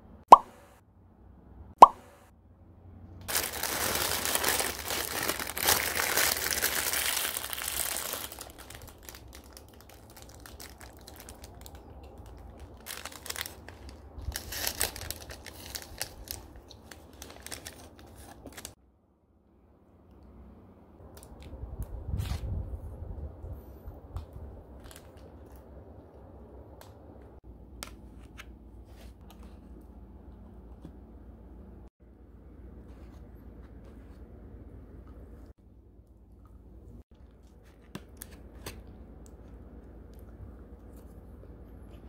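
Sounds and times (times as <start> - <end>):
paper wrapper crinkling: 3.2 - 18.8.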